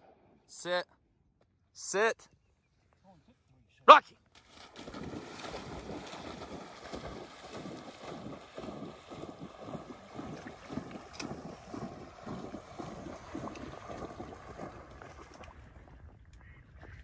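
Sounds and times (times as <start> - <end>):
dog splashing through water: 4.4 - 16.2.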